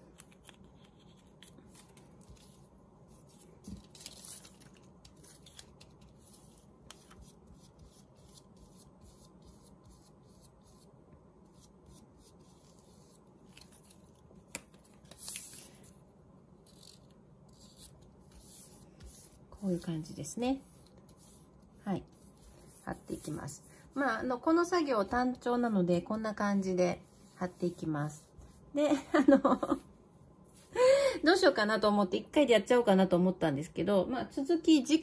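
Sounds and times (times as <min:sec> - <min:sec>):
paper rustling and rubbing: 0:00.0 - 0:10.9, 0:11.5 - 0:16.0, 0:16.6 - 0:28.7.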